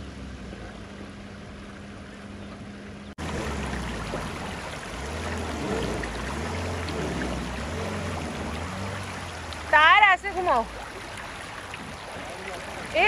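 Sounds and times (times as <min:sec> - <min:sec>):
suv engine running: 0:00.0 - 0:13.0
splashing water: 0:03.2 - 0:13.0.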